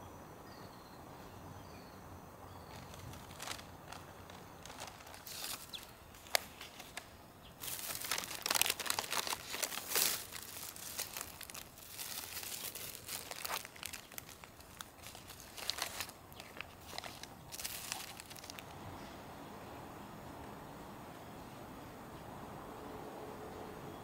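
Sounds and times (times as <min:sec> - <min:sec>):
plastic bag and paper crinkling: 0:02.6 - 0:18.7.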